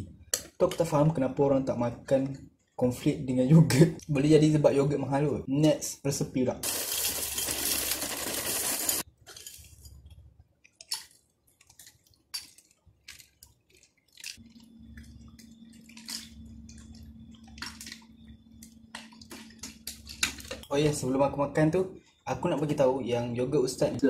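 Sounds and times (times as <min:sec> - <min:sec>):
cereal poured into a bowl: 0:06.6 - 0:09.0.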